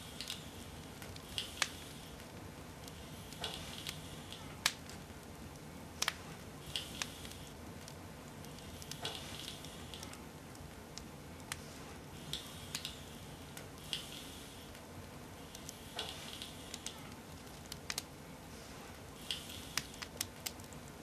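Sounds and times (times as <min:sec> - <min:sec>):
low background hum: 0:00.0 - 0:21.0
soft scraping or rustling: 0:11.6 - 0:12.1, 0:18.4 - 0:19.0.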